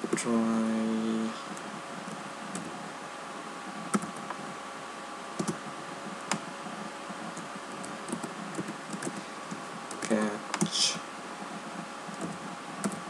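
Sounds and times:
faint hiss: 10.0 - 11.1.

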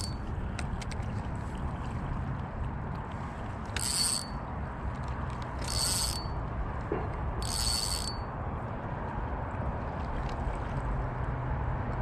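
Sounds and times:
fishing reel drag clicking: 0.0 - 1.0, 3.6 - 4.4, 5.0 - 6.5, 7.4 - 8.3.

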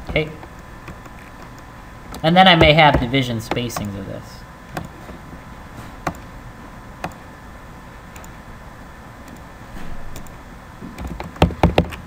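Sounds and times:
low room hiss: 0.0 - 12.0
computer mouse clicking: 4.7 - 5.0, 6.0 - 6.3, 7.0 - 7.2, 8.1 - 8.4, 9.2 - 9.5, 10.1 - 12.0.

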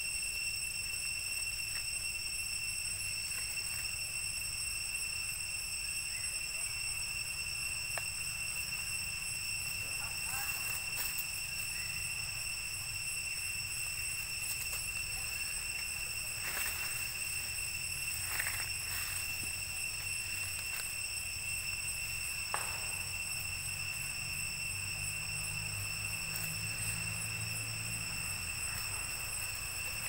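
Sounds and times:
high-pitched insect drone: 0.0 - 30.0
faint rustles or chirps: 7.5 - 23.1.

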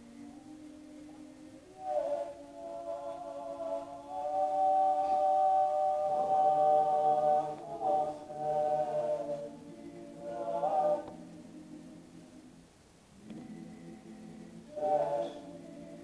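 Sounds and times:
male a cappella group singing: 0.0 - 16.0.

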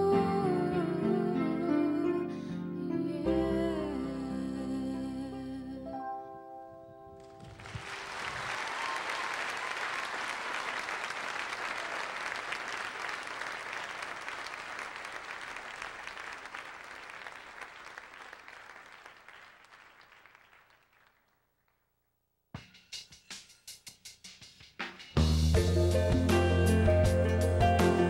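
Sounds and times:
audience applauding: 7.3 - 21.4.

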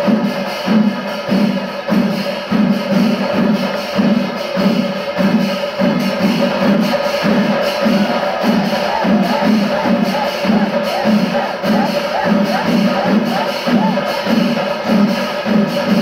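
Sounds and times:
cymbals: 0.0 - 16.0
heavy drum beats: 0.0 - 16.0
steady held tone: 5.9 - 15.2.

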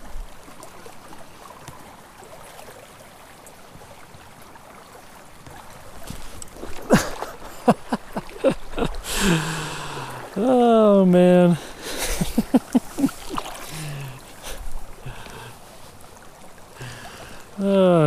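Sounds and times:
creek running over rocks: 0.0 - 18.0
footsteps splashing in water: 12.2 - 14.1.

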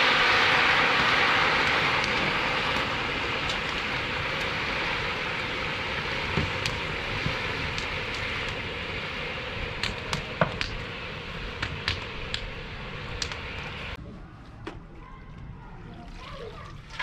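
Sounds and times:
fire and steaming pot hissing: 0.0 - 14.0.

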